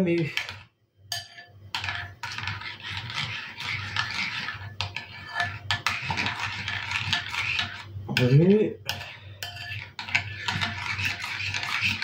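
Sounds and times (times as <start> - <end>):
metal spoon scraping a bowl: 0.2 - 12.0
spoon clinking on bowl: 9.4 - 9.8.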